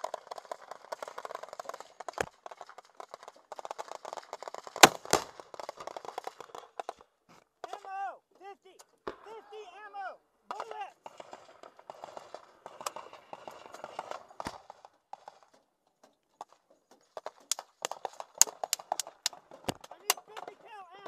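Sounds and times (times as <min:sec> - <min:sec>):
gunshots: 0:04.8 - 0:05.4.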